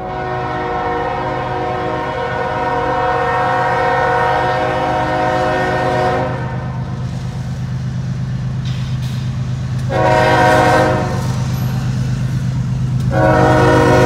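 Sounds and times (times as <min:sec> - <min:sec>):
locomotive air horn blast: 0:00.0 - 0:06.9, 0:09.8 - 0:11.4, 0:13.0 - 0:14.0.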